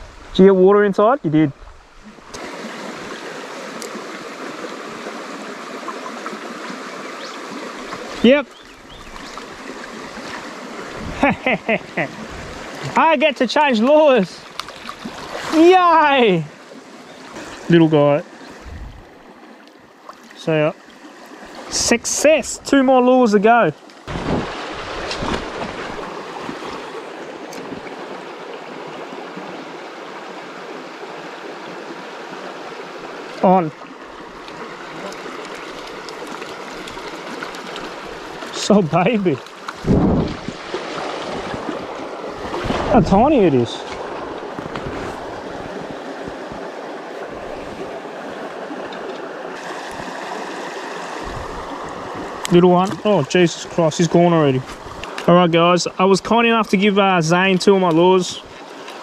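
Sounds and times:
creek water over rocks: 0:00.0 - 0:59.0.

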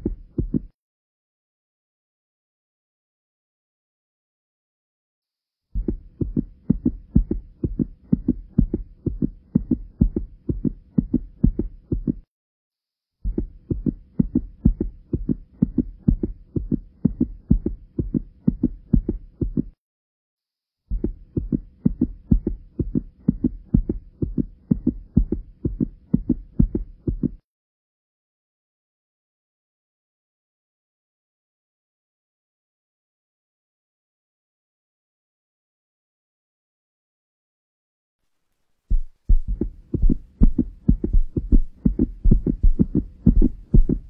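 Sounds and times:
low heartbeat-like thudding: 0:00.0 - 0:00.7, 0:05.8 - 0:12.3, 0:13.2 - 0:19.8, 0:20.9 - 0:27.4, 0:38.9 - 0:44.0.

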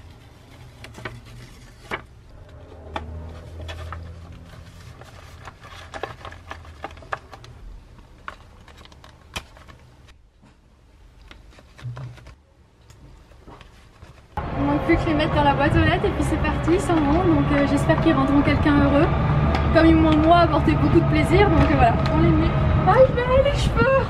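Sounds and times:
paper envelope rustling: 0:00.0 - 0:10.2, 0:11.1 - 0:12.4, 0:13.1 - 0:14.4.

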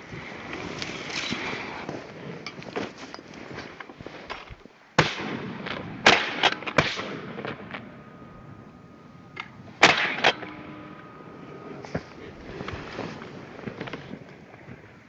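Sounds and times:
shotgun shots: 0:05.0 - 0:07.9, 0:09.4 - 0:10.9.

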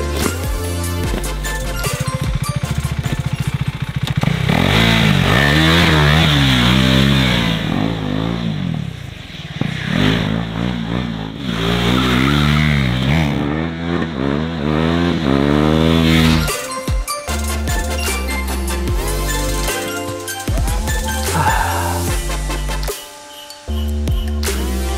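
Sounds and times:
motorcycle engine revving: 0:00.0 - 0:16.7.

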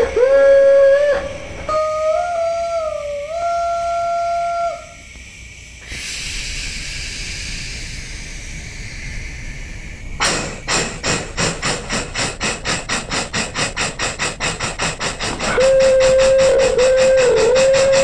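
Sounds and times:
steam whistle: 0:00.0 - 0:05.2, 0:14.9 - 0:18.0
steam hissing: 0:00.0 - 0:18.0
steam locomotive exhaust chuffs: 0:00.0 - 0:18.0.

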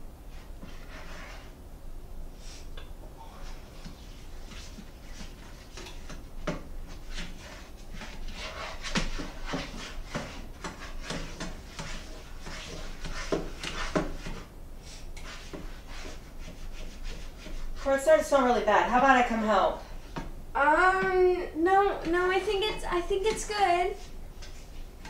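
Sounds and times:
low steady hum: 0:00.0 - 0:25.0
utensils scraping frying pan: 0:06.8 - 0:18.5.

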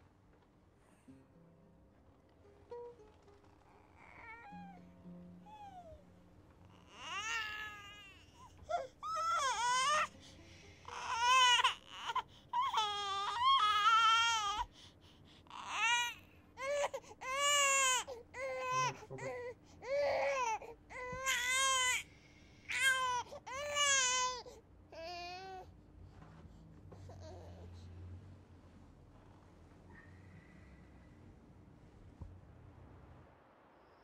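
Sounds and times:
newborn baby crying: 0:03.8 - 0:04.9, 0:06.7 - 0:14.8, 0:15.5 - 0:22.1, 0:22.7 - 0:25.7.

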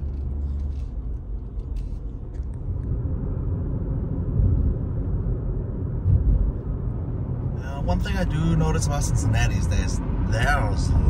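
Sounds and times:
car road noise rumble: 0:00.0 - 0:11.0
low bump: 0:05.7 - 0:07.6.

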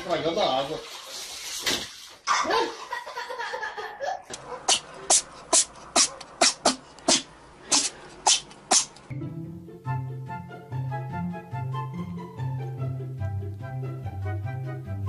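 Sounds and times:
cat chattering: 0:04.4 - 0:09.0.

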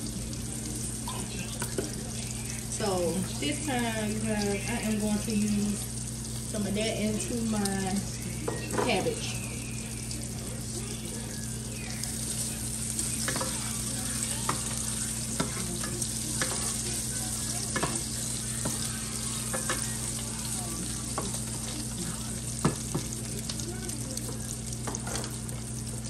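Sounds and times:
bacon sizzling in a skillet: 0:00.0 - 0:26.0
wooden spatula scraping a pan: 0:14.4 - 0:20.2.

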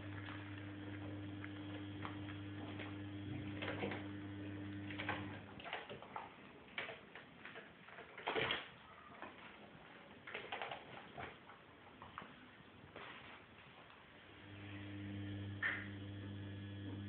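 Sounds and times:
steady low hum: 0:00.0 - 0:05.5, 0:14.3 - 0:17.0.

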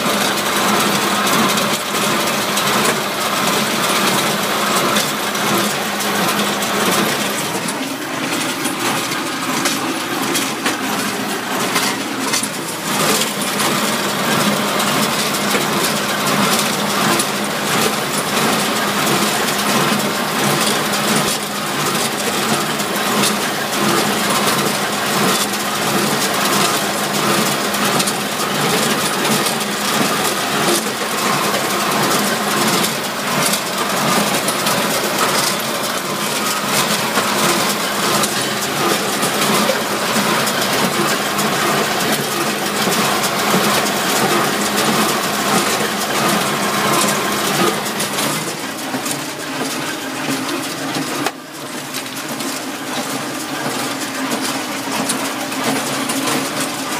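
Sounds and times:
tractor engine running: 0:00.0 - 0:56.9
baler clattering and knocking: 0:00.1 - 0:19.3.

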